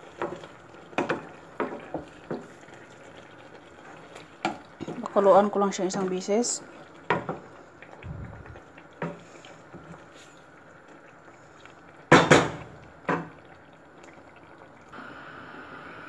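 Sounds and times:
sauce simmering in a pot: 0.0 - 16.0
steady hum: 7.9 - 8.7.

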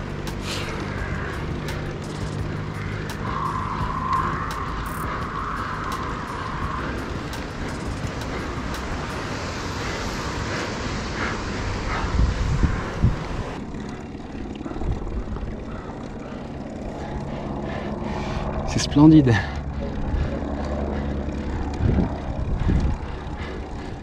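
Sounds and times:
low wind buffets: 0.0 - 24.0
wind rushing over microphone: 0.0 - 24.0.

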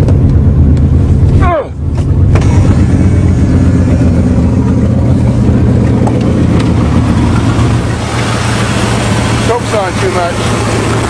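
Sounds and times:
car engine fast idle: 2.3 - 11.0.

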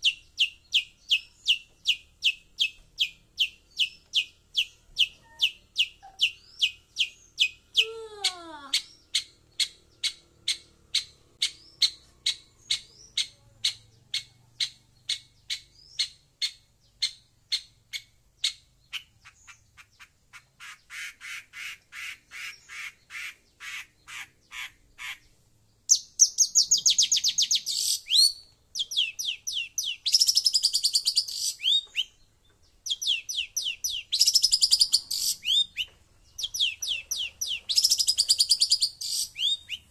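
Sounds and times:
bird harsh chattering: 18.5 - 25.3, 32.9 - 39.9.

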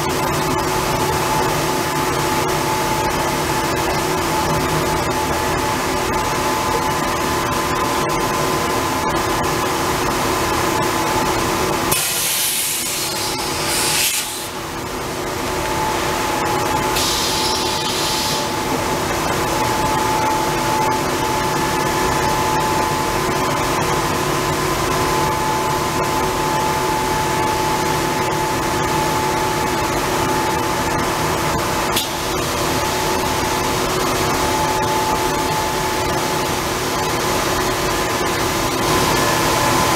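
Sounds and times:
machinery humming: 0.0 - 39.9
loud hiss: 11.9 - 14.6, 17.0 - 18.5.

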